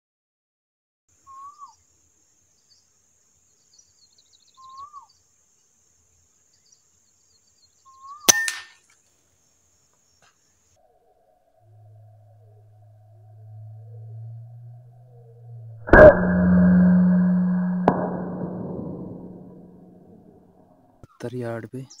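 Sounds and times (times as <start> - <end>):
bird calling: 1.2 - 1.8, 3.7 - 5.2, 7.6 - 8.8
air rifle shot: 8.3 - 8.8.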